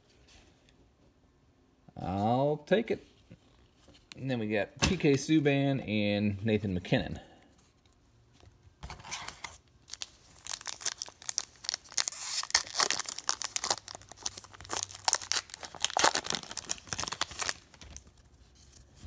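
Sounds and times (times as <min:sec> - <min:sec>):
card pack wrapper tearing: 0:09.0 - 0:18.2.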